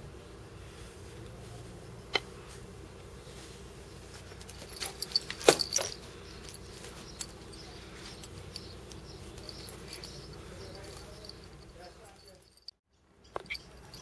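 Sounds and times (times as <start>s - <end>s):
cat rustling against camera: 3.3s - 12.2s.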